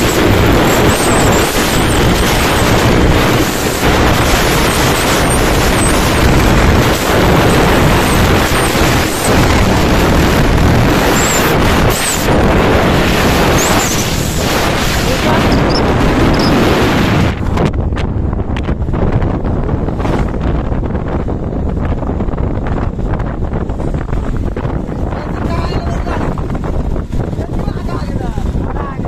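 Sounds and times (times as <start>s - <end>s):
motorcycle engine running: 0.0s - 28.9s
wind buffeting microphone: 0.0s - 29.0s.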